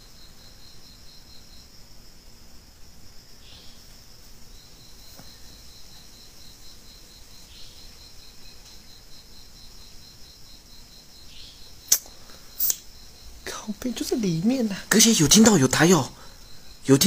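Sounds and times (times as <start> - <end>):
night insects chirping: 0.0 - 17.0
sharp click: 11.9 - 12.9.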